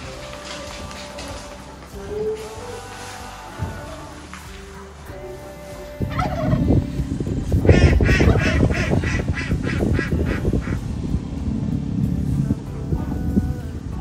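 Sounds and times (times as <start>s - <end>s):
loud crackly rustle: 0.0s - 13.8s
fowl giving harsh calls: 7.7s - 10.8s.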